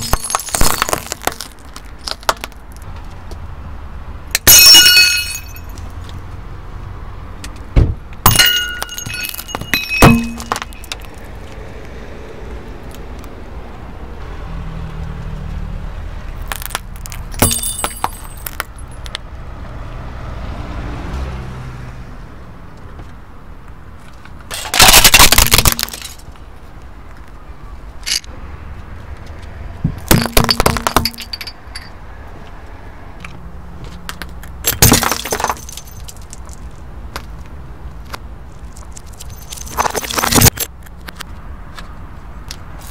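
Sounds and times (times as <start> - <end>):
tyre crushing brittle objects: 0.0 - 2.8, 16.4 - 18.7, 24.5 - 26.2.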